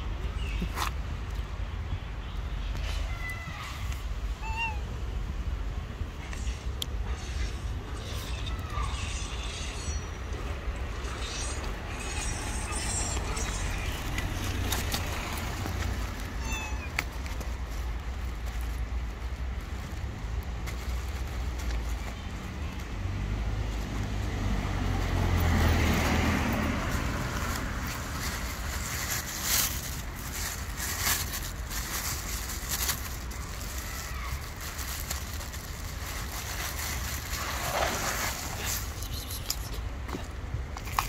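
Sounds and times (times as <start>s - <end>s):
road traffic rumble: 0.0s - 41.0s
vehicle passing: 22.3s - 32.2s
plastic bag crinkling: 25.8s - 39.3s.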